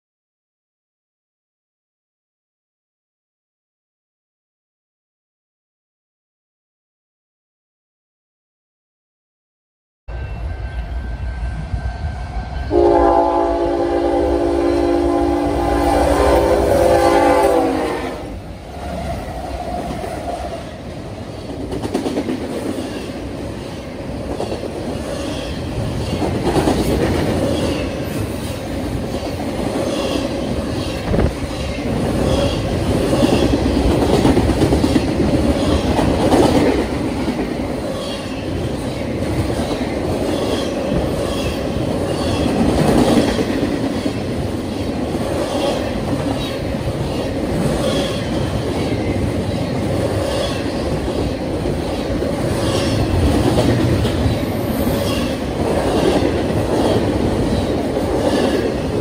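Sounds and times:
locomotive air horn: 12.7s - 18.3s.

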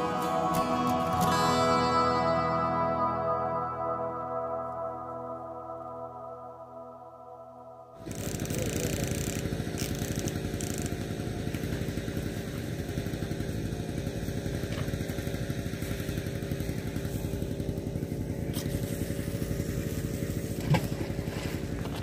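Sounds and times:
small engine running: 0.0s - 3.5s, 8.0s - 22.0s.

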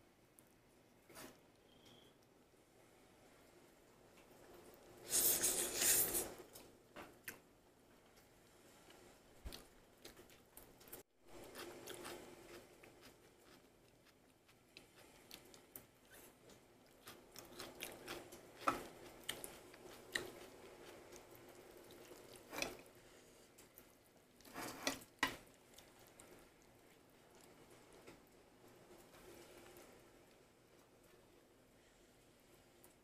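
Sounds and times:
chewing and crunching: 8.9s - 23.0s, 23.6s - 29.8s.

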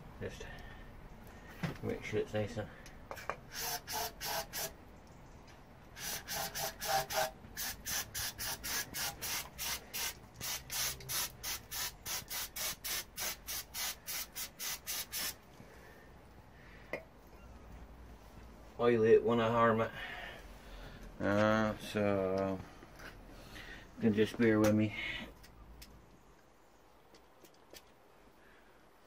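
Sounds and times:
aerosol spray can hissing: 3.5s - 4.8s, 6.0s - 15.4s.

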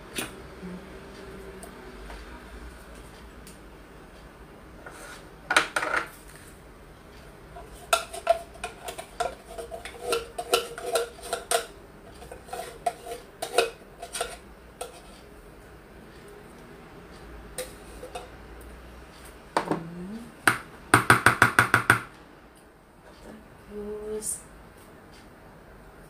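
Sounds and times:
tin can clinking against whisk: 7.9s - 15.2s.

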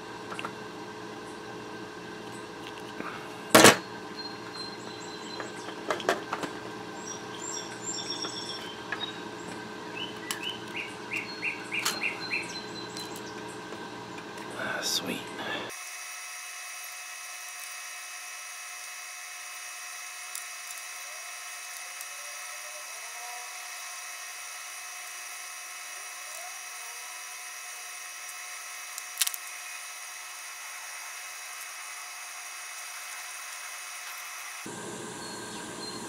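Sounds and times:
soldering iron hissing: 14.6s - 36.0s.

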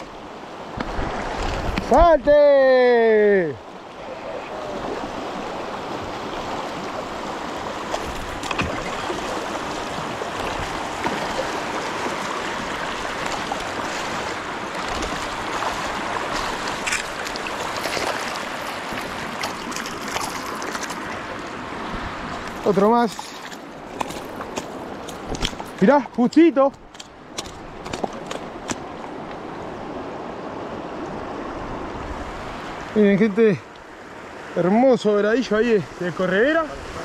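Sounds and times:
river water rushing: 0.0s - 37.0s
fish splashing at surface: 14.8s - 21.1s.

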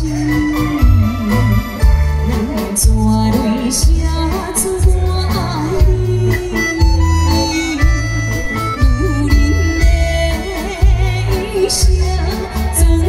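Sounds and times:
drum and bass beat: 0.0s - 13.0s
live band music: 0.0s - 13.0s.

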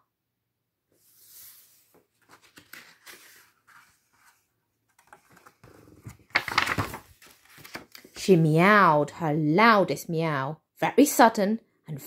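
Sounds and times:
soft scrapes: 0.9s - 5.5s
paper page rustling: 1.0s - 8.2s.

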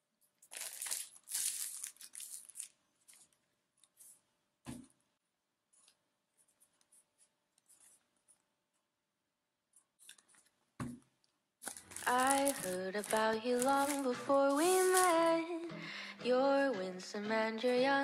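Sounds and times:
plastic bag crinkling: 0.4s - 3.4s, 11.6s - 15.4s.

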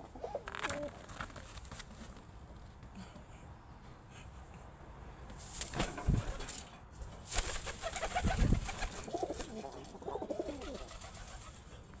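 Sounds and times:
pigeons cooing: 8.3s - 11.5s.

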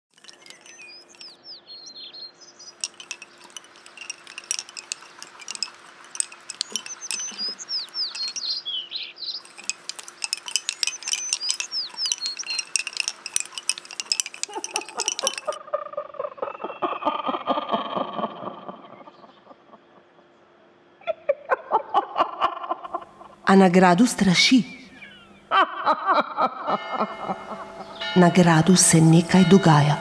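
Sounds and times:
wooden bobbins clicking: 0.1s - 1.3s, 2.8s - 8.5s, 9.4s - 15.6s
birds chirping: 0.1s - 15.6s, 24.7s - 25.5s.

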